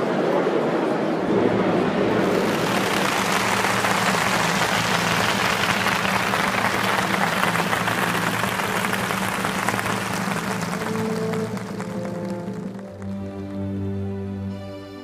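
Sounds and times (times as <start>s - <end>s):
large crowd applauding: 2.2s - 14.2s.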